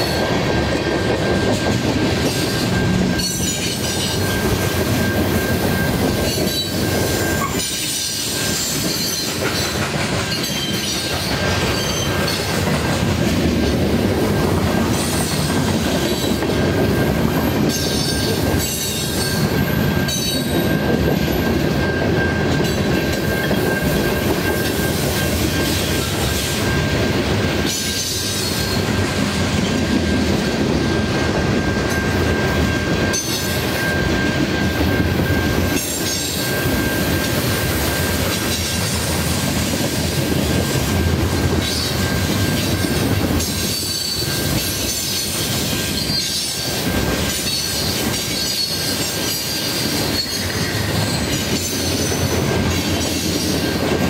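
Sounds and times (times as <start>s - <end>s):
train wheels rumbling and clattering: 0.0s - 54.0s
high-pitched wheel squeal: 2.3s - 12.3s, 31.6s - 38.2s, 41.6s - 46.8s, 47.4s - 53.8s.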